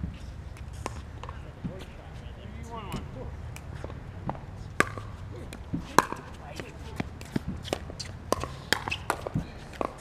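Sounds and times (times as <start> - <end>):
paddles hitting ball: 2.9 - 10.0
ball bouncing on hard court: 3.8 - 10.0.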